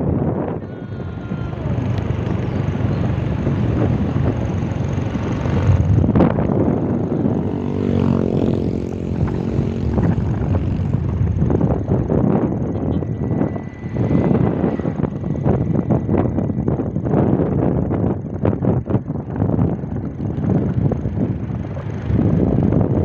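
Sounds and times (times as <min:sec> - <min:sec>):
motorcycle engine drone: 0:00.0 - 0:23.0
road noise: 0:00.0 - 0:23.0
motorcycle passing by: 0:00.8 - 0:23.0.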